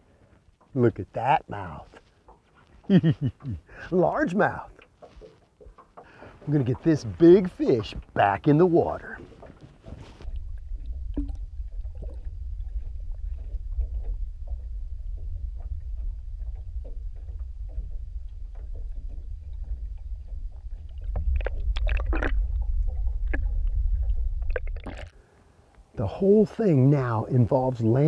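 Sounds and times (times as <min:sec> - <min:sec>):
underwater rumble: 0:01.4 - 0:26.2.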